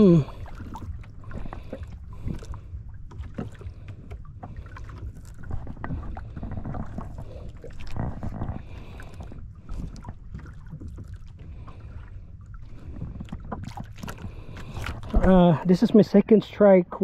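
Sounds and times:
wind rumbling on microphone: 0.0s - 16.2s
water lapping against boat hull: 0.0s - 17.0s
knocks and clicks of rod and reel: 0.6s - 11.1s.

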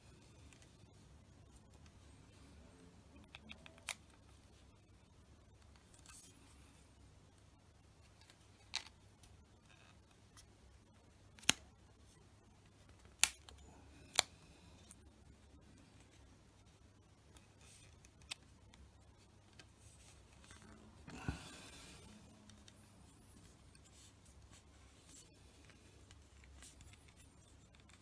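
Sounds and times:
vinyl rustling: 11.2s - 28.0s.

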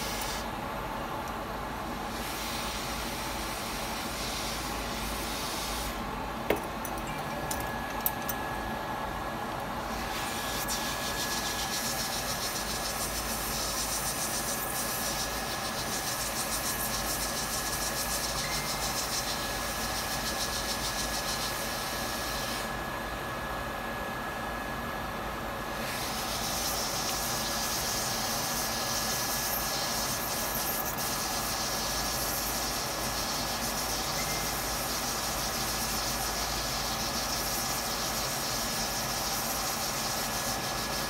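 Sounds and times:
hot air blower hissing: 0.0s - 23.7s, 25.6s - 41.0s.

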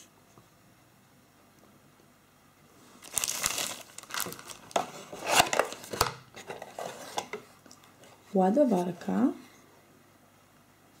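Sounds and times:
cardboard packaging rustling: 2.9s - 8.2s.

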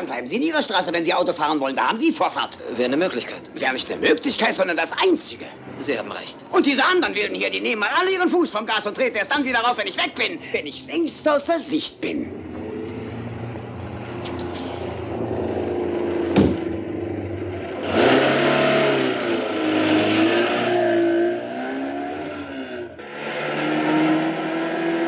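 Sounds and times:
car engines idling: 12.0s - 19.9s
car driving along: 12.1s - 25.0s
engines revving loudly: 12.3s - 25.0s
sharp knock: 16.3s - 16.8s.

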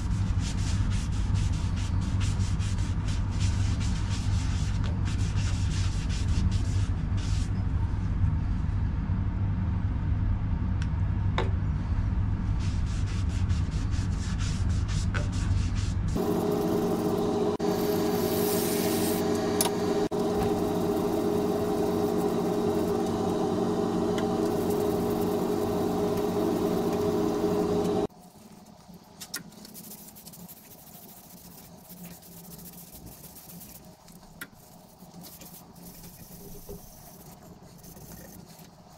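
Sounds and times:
cloth rubbing on wood: 12.9s - 28.1s, 29.6s - 38.9s
sanding pad whine on bowl: 16.2s - 28.1s, 29.6s - 33.9s, 34.7s - 38.9s
wood lathe humming: 16.2s - 28.1s.

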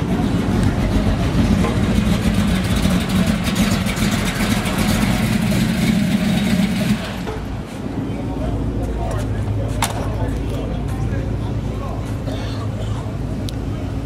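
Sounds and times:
car engine running: 0.0s - 7.6s.

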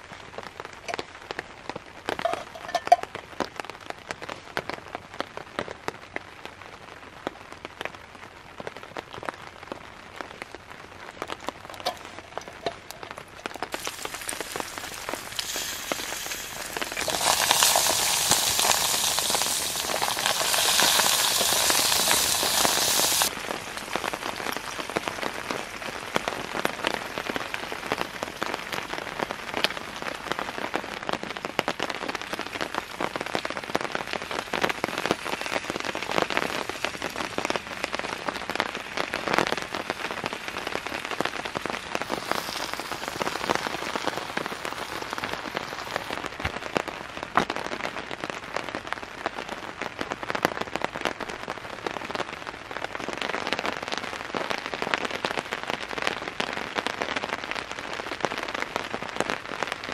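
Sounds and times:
rain pattering on tarp: 0.0s - 59.9s
food sizzling in hot pot: 2.2s - 3.1s, 11.7s - 24.2s, 41.8s - 46.3s
sharp raindrop hits: 11.3s - 29.9s, 39.9s - 47.6s.

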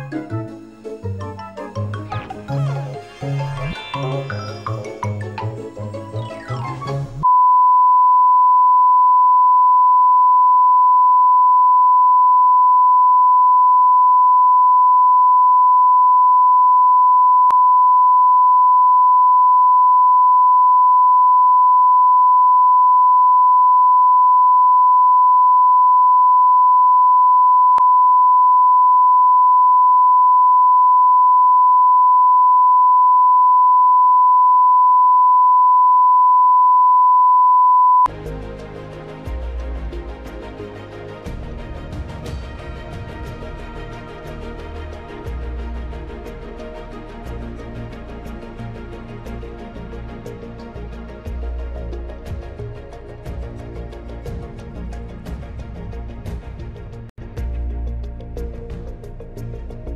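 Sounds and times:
channel ident music: 1.1s - 7.2s
steady pure test tone beep: 7.2s - 38.1s.

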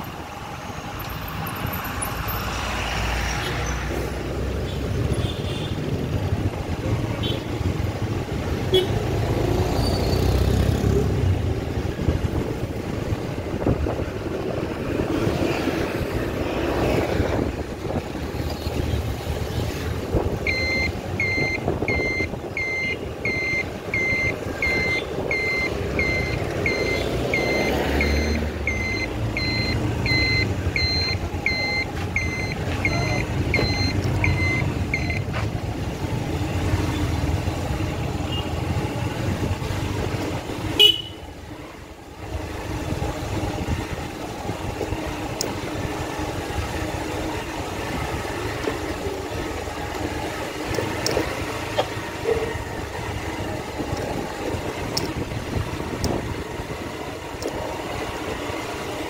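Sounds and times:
road vehicle engine: 0.0s - 59.0s
traffic noise: 0.0s - 59.0s
reversing alarm beeping: 20.4s - 35.3s.

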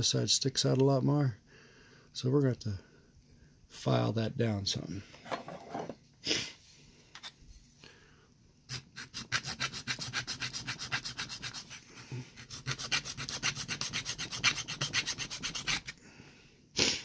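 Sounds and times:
hand file scraping plastic: 8.7s - 16.0s.

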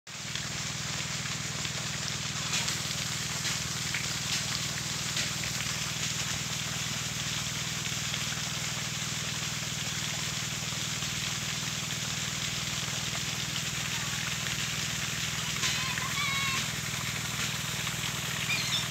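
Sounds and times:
even hiss: 12.6s - 18.9s.

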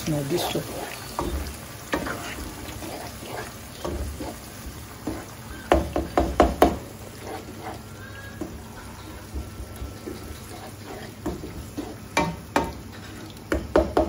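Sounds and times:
wooden spoon stirring wet mixture: 0.0s - 14.0s
spoon knocking against pan: 5.0s - 6.8s, 12.1s - 12.8s, 13.5s - 14.0s.

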